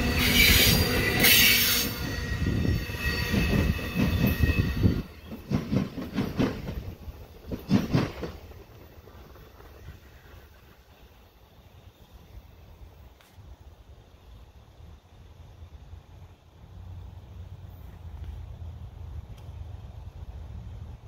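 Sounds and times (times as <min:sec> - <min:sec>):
train wheels squealing: 0:00.0 - 0:06.4
wheels clacking over rail joints: 0:00.0 - 0:10.6.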